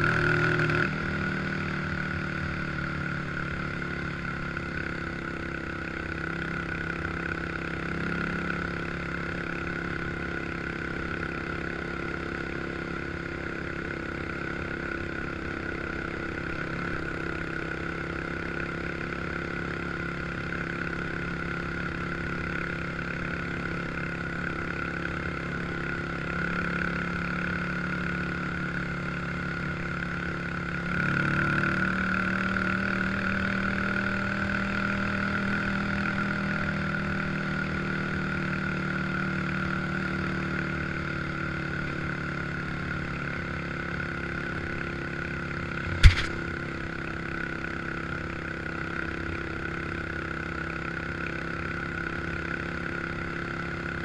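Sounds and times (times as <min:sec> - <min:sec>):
atv engine running: 0:00.0 - 0:54.0
sharp knock: 0:45.8 - 0:46.4.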